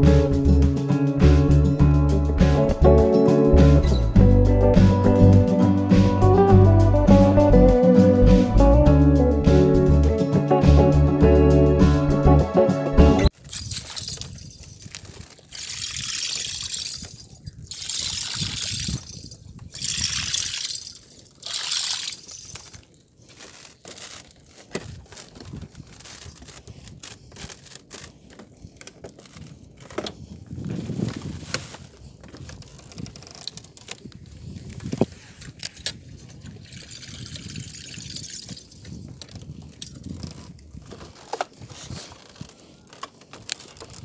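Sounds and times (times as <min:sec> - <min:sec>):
water sloshing and splashing: 0:13.3 - 0:28.0.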